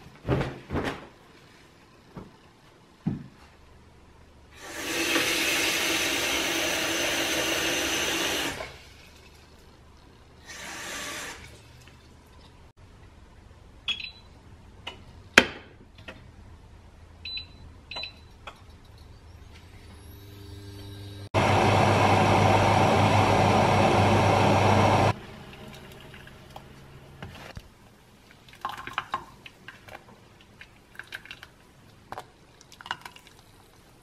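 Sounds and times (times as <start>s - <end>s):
short beeps: 13.9s - 14.3s.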